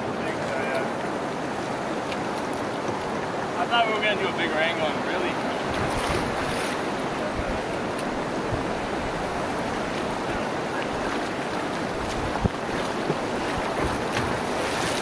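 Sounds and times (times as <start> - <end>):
whitewater rapids rushing: 0.0 - 15.0.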